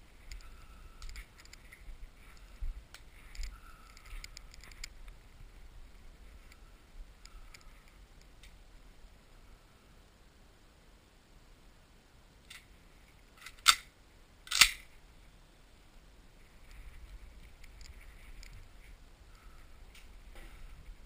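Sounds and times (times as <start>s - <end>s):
shotgun handling clicks and knocks: 13.4s - 13.9s, 14.5s - 14.9s.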